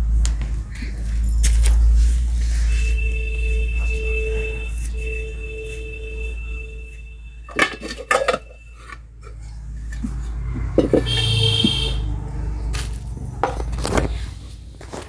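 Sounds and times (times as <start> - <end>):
metallic rattle of utensils: 7.5 - 9.4
spoon scraping metal pot: 7.5 - 10.1.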